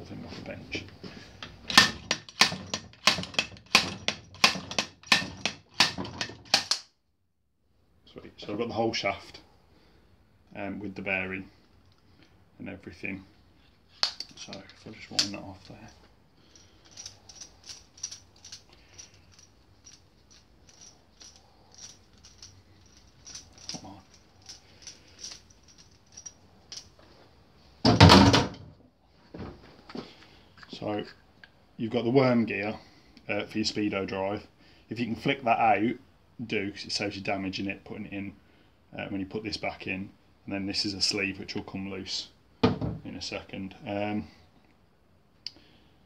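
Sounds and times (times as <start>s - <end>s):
metallic clicks and rattles: 1.4s - 6.9s, 14.0s - 27.0s.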